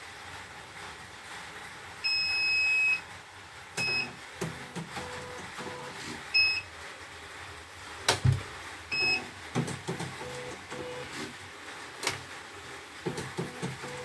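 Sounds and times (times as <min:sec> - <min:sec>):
short electronic beeps: 0:02.1 - 0:03.0, 0:03.8 - 0:04.1, 0:06.4 - 0:06.6, 0:08.9 - 0:09.3.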